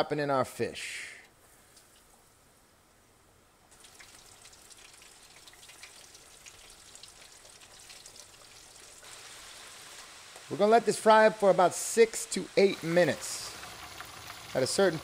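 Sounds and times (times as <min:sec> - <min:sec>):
fish frying in oil: 0:03.7 - 0:15.0.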